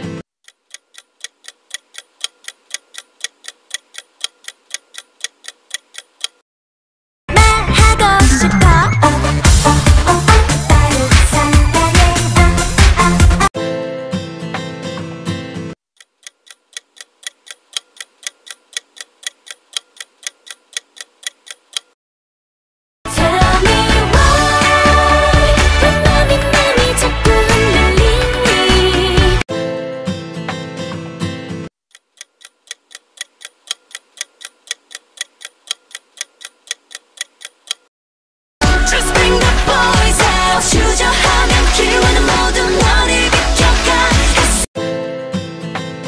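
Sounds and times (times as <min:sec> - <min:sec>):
clock ticking timer: 0:00.4 - 0:06.4, 0:16.0 - 0:22.0, 0:31.9 - 0:37.9.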